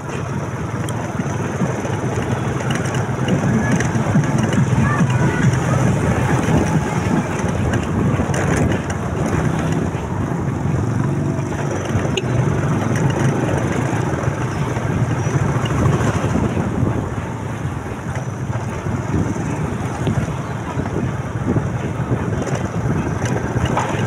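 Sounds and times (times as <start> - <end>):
motorcycle engine running: 0.0 - 24.0
road and wind noise: 0.0 - 24.0.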